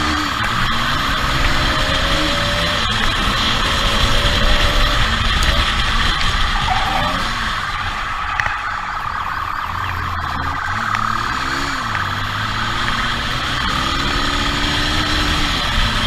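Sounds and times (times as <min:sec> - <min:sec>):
motorcycle engine revving: 0:00.0 - 0:16.0
wind rush on microphone: 0:00.7 - 0:10.4
siren: 0:06.3 - 0:14.2.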